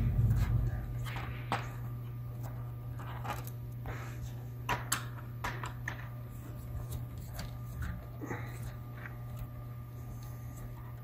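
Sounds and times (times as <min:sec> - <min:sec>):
low hum: 0:00.0 - 0:04.7.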